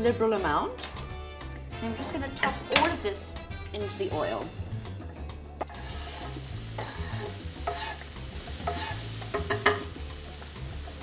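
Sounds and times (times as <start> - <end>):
onion sizzling in hot oil: 5.6 - 11.0.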